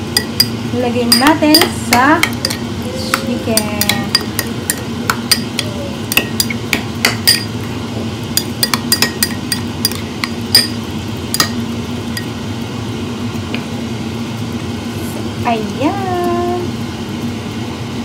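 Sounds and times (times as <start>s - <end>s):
steady low hum: 0.0s - 18.0s
metal spoon clinking against bowl: 0.1s - 7.6s, 8.4s - 11.6s.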